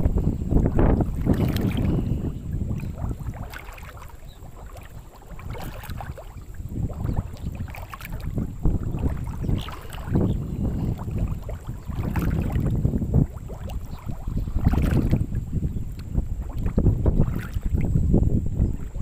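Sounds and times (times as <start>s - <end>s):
water lapping and splashing: 0.0s - 19.0s
wind buffeting microphone: 0.0s - 19.0s.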